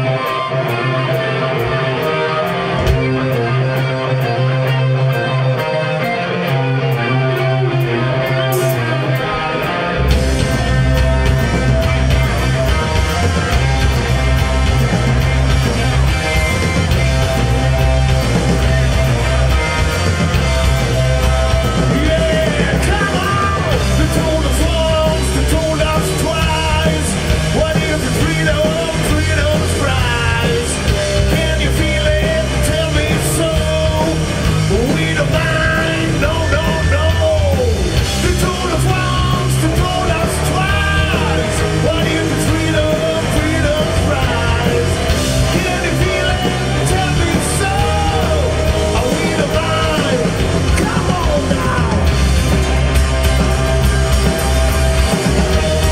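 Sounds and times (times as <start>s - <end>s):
rock band playing live: 0.0s - 55.9s
man singing into microphone: 21.8s - 52.1s.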